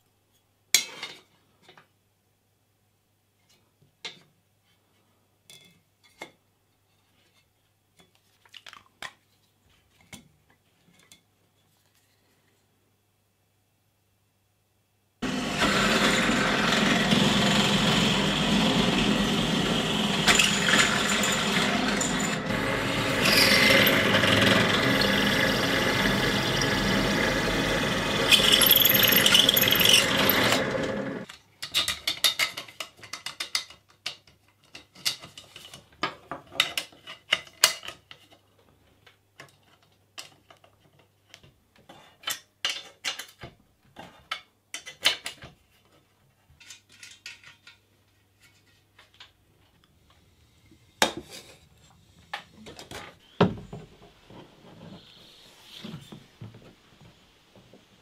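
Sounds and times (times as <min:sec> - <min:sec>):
drill press drilling metal: 0:15.2 - 0:31.2.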